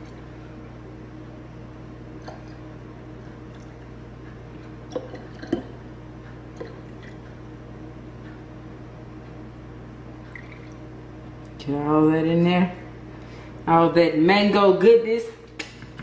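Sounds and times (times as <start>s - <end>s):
liquid trickling through funnel: 10.2s - 11.0s.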